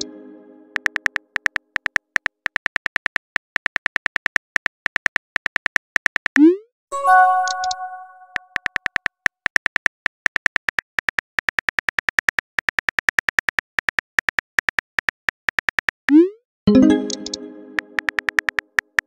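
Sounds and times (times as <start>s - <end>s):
message chime: 7.0s - 8.4s, 16.7s - 18.1s
phone keyboard tapping clicks: 18.0s - 19.0s.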